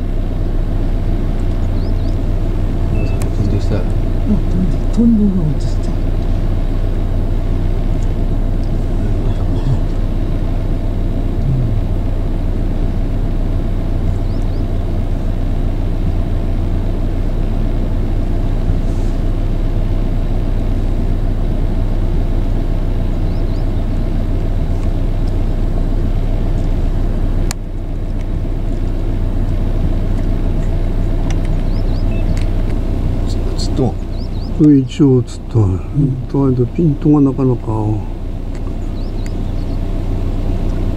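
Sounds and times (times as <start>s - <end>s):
low hum of road traffic: 0.0s - 40.9s.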